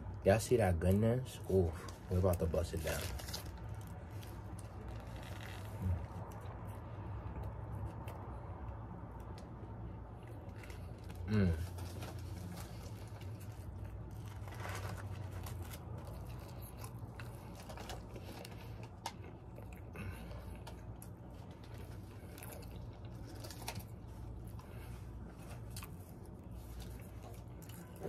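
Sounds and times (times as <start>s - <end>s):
steady low hum: 0.0s - 28.0s
soft chewing: 0.8s - 28.0s
paper wrapper crinkling: 1.8s - 6.4s, 10.6s - 19.1s.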